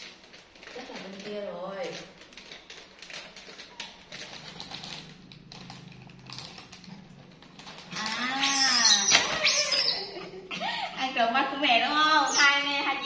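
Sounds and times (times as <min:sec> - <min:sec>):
scattered taps and rustling: 0:00.0 - 0:08.2
crinkling: 0:00.0 - 0:10.4.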